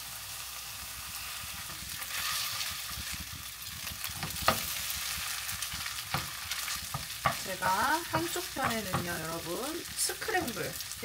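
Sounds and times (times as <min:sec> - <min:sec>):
rice sizzling in a pan: 0:00.0 - 0:11.0
utensil clacking against pan: 0:05.8 - 0:09.2.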